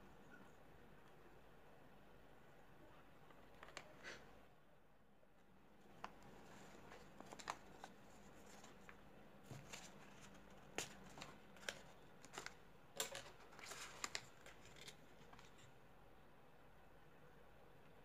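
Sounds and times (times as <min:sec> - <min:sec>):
paper crackling and creasing: 0:06.0 - 0:15.7.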